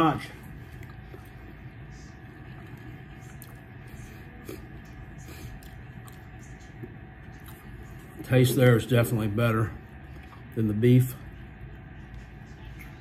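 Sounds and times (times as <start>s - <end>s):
low room hum: 0.0s - 13.0s
faint chewing and mouth sounds: 0.3s - 8.4s, 9.8s - 10.6s.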